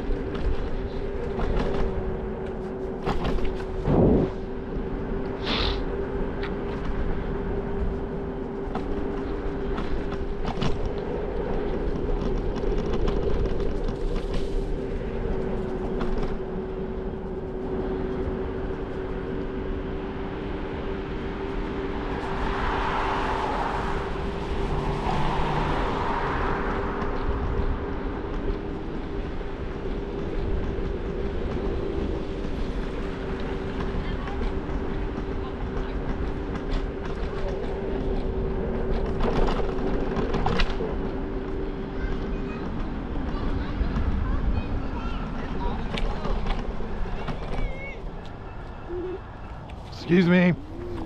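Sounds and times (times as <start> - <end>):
scooter riding hum: 0.0 - 51.0
hiss: 5.4 - 5.8.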